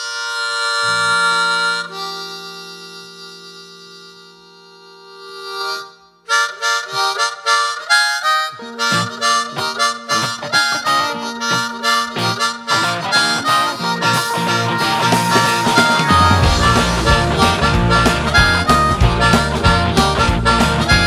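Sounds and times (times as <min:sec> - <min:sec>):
blues harmonica: 0:00.0 - 0:21.0
band with drum beats: 0:12.2 - 0:21.0.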